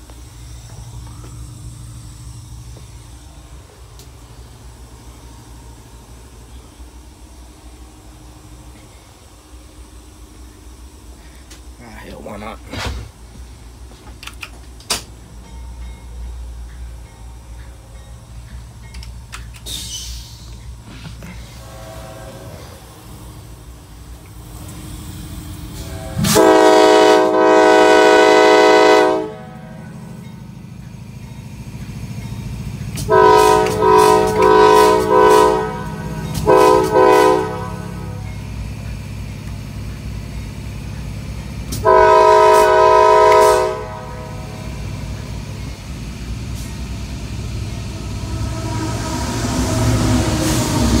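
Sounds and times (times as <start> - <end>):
locomotive running rumble: 0.0 - 51.0
locomotive air horn blasts: 21.4 - 23.0, 25.8 - 29.9, 33.0 - 38.3, 41.8 - 44.7, 48.2 - 50.9.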